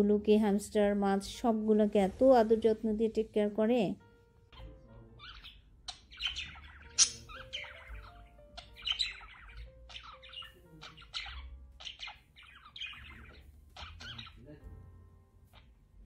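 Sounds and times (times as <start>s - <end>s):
faint music: 0.0s - 16.0s
budgerigars chattering: 4.5s - 14.6s.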